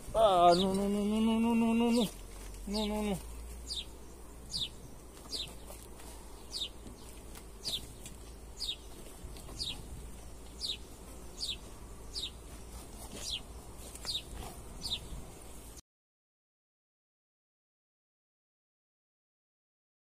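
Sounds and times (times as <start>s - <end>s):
bird calling: 0.2s - 15.2s.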